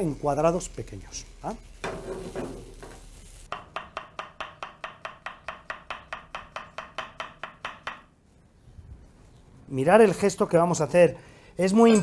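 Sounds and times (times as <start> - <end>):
knife chopping on wooden board: 3.5 - 8.1.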